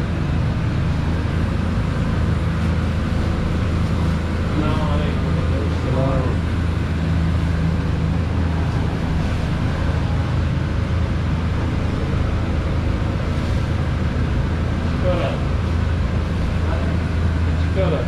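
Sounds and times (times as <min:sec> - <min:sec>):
kitchen cooking stations rumble: 0:00.0 - 0:18.0.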